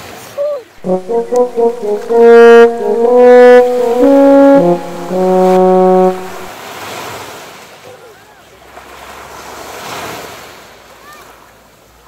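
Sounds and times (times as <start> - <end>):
short music jingle: 0.8 - 6.5.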